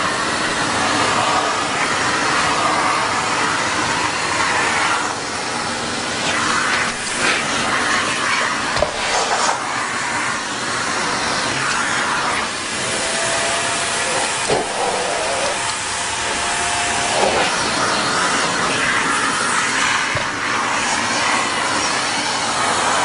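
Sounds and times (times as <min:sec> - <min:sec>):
vacuum cleaner suction hiss: 0:00.0 - 0:23.0.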